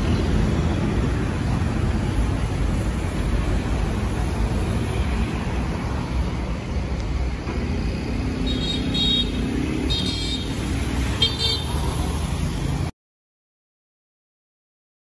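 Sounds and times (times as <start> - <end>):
road traffic rumble: 0.0 - 12.9
vehicle engine: 0.0 - 12.9.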